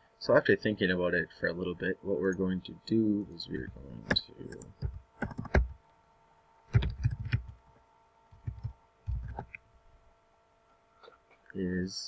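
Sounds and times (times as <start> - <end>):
faint electrical hum: 0.0 - 12.0
keyboard typing: 4.0 - 5.8, 6.7 - 7.6, 8.3 - 9.6.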